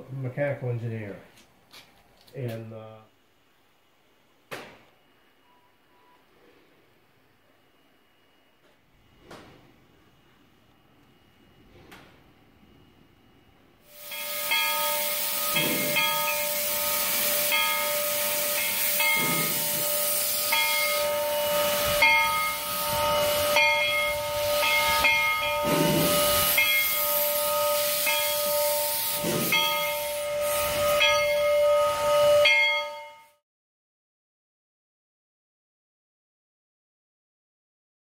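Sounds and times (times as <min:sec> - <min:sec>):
steam locomotive hissing: 0:13.8 - 0:33.3
high ringing tone: 0:13.9 - 0:33.4.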